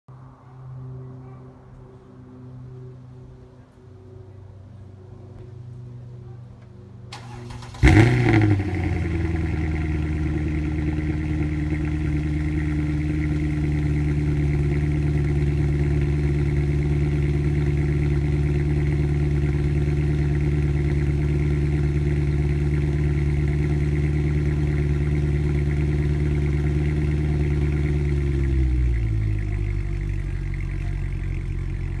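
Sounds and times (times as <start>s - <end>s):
car engine revving and idling: 7.2s - 32.0s.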